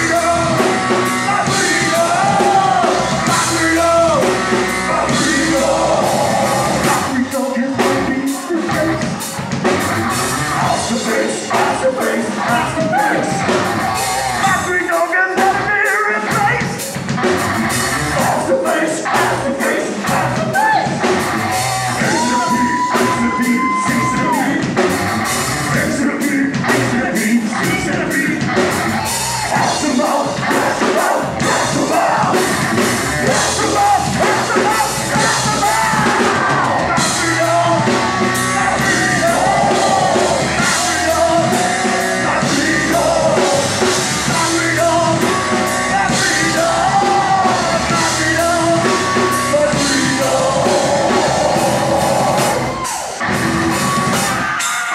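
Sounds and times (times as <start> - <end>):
person yelling and singing: 0.0 - 9.0, 10.5 - 16.8, 18.2 - 24.7, 33.2 - 53.0
electric guitars: 0.0 - 14.6, 19.1 - 54.9
drum kit: 0.0 - 54.9.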